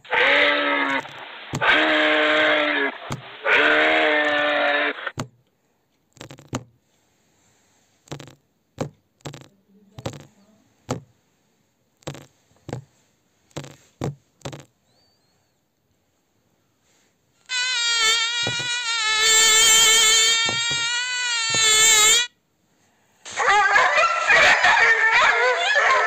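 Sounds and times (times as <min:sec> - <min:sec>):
moose call: 0:00.0 - 0:05.1, 0:17.5 - 0:22.3.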